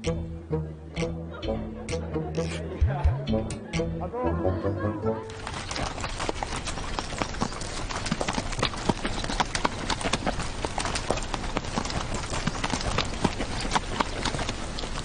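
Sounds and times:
horse hooves galloping: 0:05.3 - 0:15.0.

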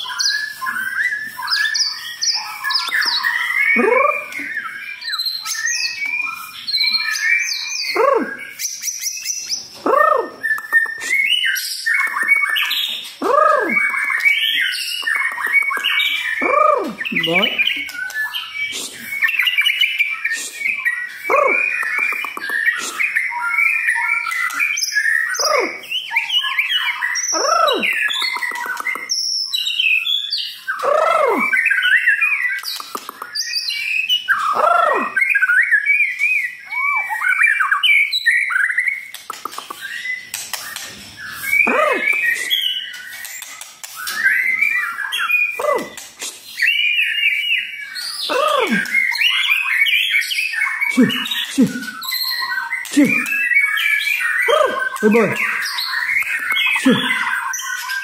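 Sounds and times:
songbird singing varied song: 0:00.0 - 0:58.0.

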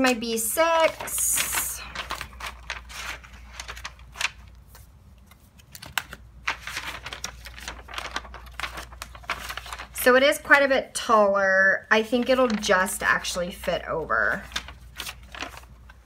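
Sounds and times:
pages flipping: 0:00.0 - 0:10.0, 0:14.1 - 0:16.0
paper rustling and crinkling: 0:00.0 - 0:10.2, 0:12.0 - 0:16.0.

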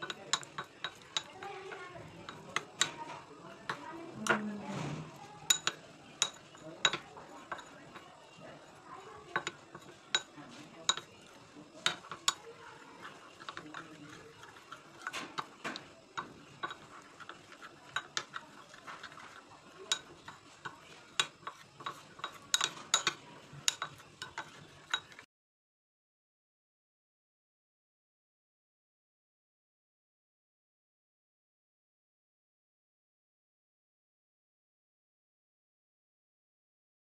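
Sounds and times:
metal spoon clinking against glass bowl: 0:00.0 - 0:25.2.

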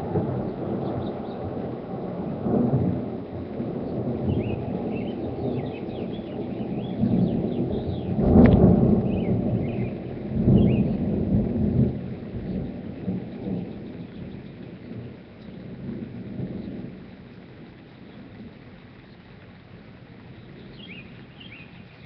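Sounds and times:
thunder crack and rumble: 0:00.0 - 0:21.0
birds chirping: 0:03.9 - 0:08.2, 0:09.0 - 0:11.0, 0:20.2 - 0:22.0.

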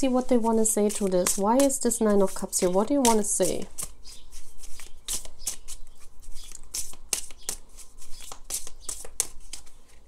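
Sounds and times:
cards being shuffled: 0:00.0 - 0:10.0.

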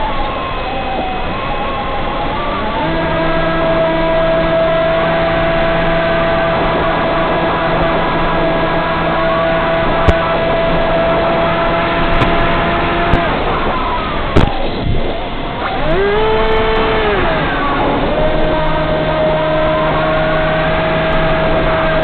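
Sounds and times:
electric motor propeller drone: 0:00.0 - 0:22.0
wind rush: 0:06.4 - 0:20.1.

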